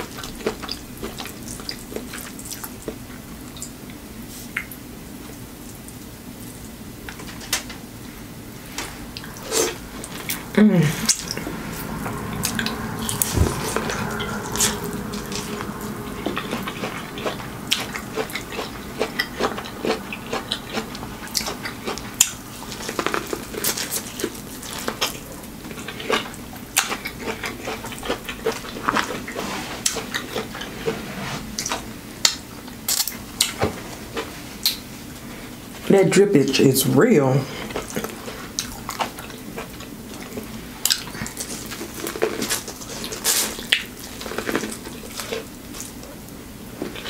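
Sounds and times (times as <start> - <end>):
chewing corn on the cob: 12.1 - 31.0, 31.6 - 34.8, 37.5 - 47.0.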